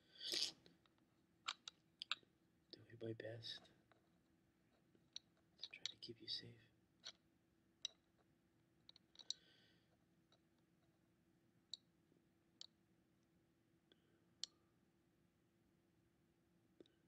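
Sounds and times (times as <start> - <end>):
low room hum: 0.0 - 17.0
soft hiss: 2.7 - 4.0, 5.6 - 6.8.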